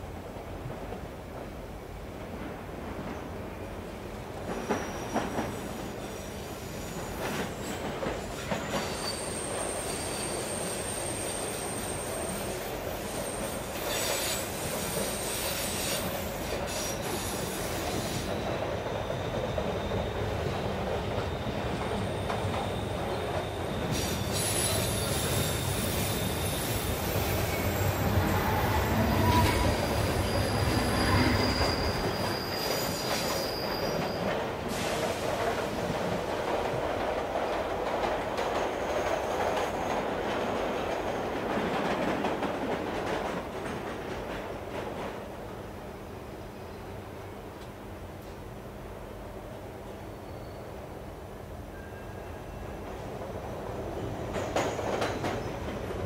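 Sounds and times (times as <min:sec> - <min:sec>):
train rumbling on rails: 0:00.0 - 0:56.0
high wheel squeals: 0:04.6 - 0:20.2, 0:21.4 - 0:34.9.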